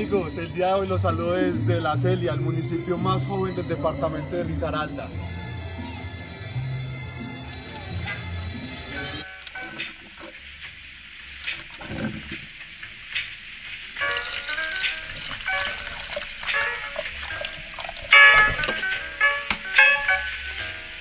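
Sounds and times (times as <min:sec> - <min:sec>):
background music: 0:00.0 - 0:10.1, 0:14.0 - 0:21.0
steady hiss: 0:09.2 - 0:17.0.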